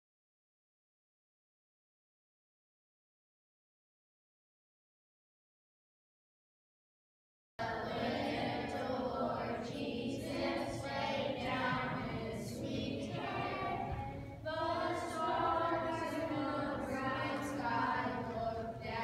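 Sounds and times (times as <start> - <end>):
children singing in unison: 7.6 - 19.0.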